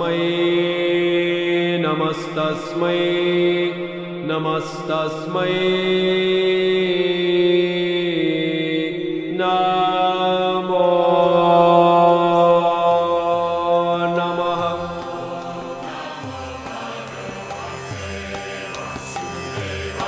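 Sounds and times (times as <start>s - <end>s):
mantra chanted in long notes: 0.0s - 20.0s
steady drone: 13.3s - 20.0s.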